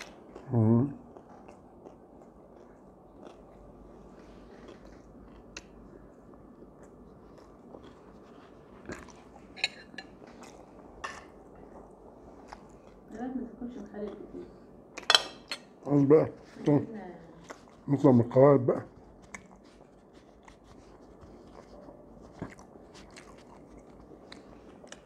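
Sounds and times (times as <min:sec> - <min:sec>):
person chewing: 0:00.0 - 0:13.1, 0:17.4 - 0:17.9, 0:18.9 - 0:25.0.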